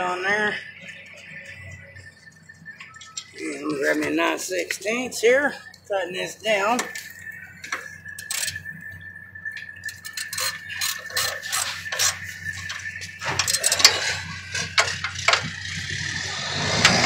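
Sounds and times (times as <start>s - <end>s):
thin steady high tone: 0.0s - 16.8s.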